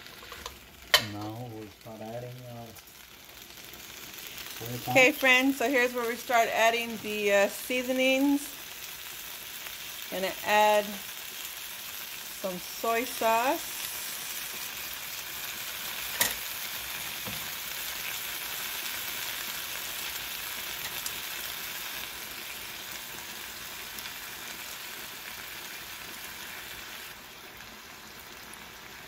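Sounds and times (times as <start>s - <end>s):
vegetables sizzling in a hot pan: 0.0s - 29.0s.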